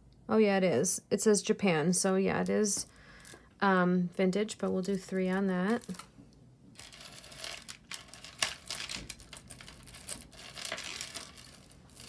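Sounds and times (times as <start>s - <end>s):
packaging crinkling and rustling: 6.8s - 12.0s.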